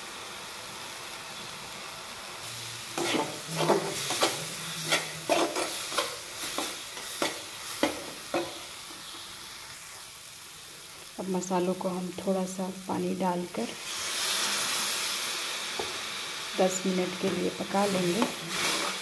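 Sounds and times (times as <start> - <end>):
faint sizzle: 0.0 - 19.0
spoon scraping metal pan: 2.9 - 8.6.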